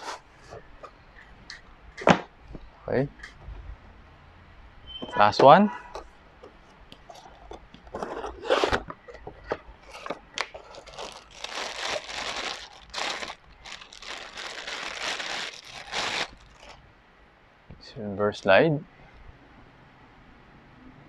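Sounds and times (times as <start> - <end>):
plastic bag crinkling: 7.0 - 16.8.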